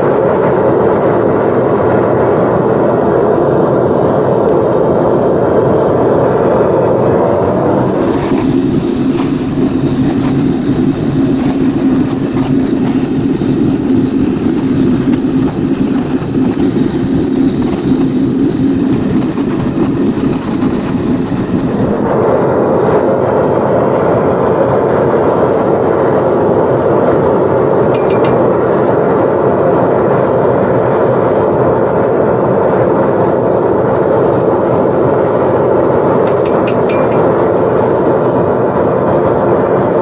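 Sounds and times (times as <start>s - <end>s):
torch flame rushing: 0.0s - 30.6s
furnace burner roaring: 0.0s - 40.0s.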